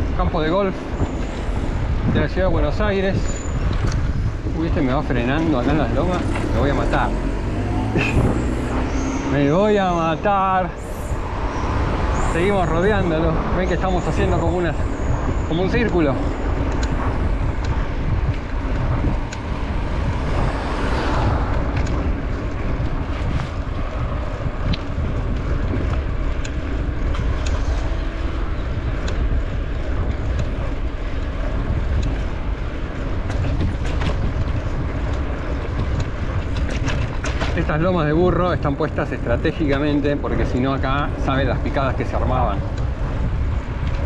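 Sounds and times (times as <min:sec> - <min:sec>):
wind rushing over microphone: 0:00.0 - 0:44.0.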